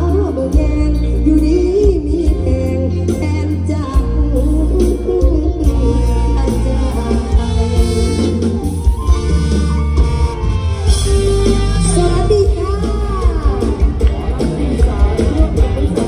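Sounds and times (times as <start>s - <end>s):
band music over sound system: 0.0s - 16.0s
person singing: 11.4s - 16.0s.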